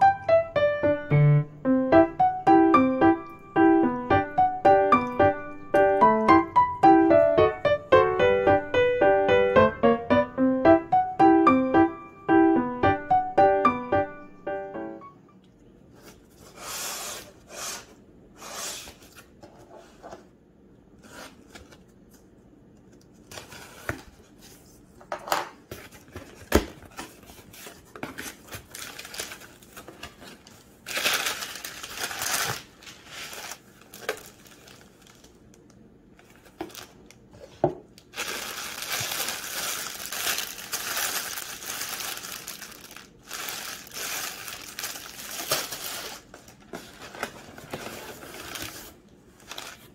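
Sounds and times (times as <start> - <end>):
packing paper rustling: 22.9 - 24.9, 25.6 - 49.9
plastic wrap crinkling: 25.8 - 49.9.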